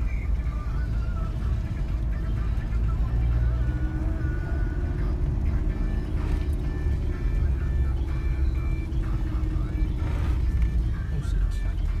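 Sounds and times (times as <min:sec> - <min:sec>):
car engine and tyres rumbling: 0:00.0 - 0:12.0
music playing: 0:00.0 - 0:12.0.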